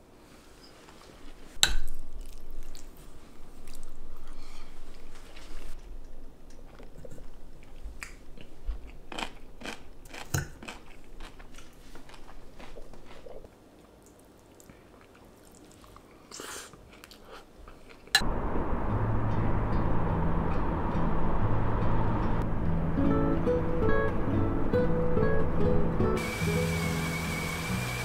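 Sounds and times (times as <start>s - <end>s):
chewing and crunching: 1.8s - 18.2s
outdoor rumble: 18.2s - 28.0s.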